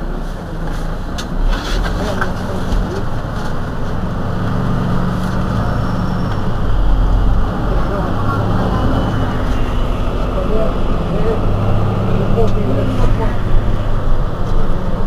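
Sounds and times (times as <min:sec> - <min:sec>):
bus engine idling: 0:00.0 - 0:15.0.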